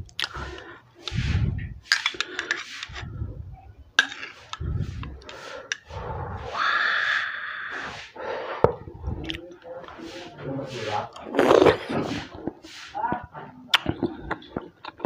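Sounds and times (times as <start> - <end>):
metal spoon scraping glass cup: 1.9 - 3.1, 4.0 - 5.9.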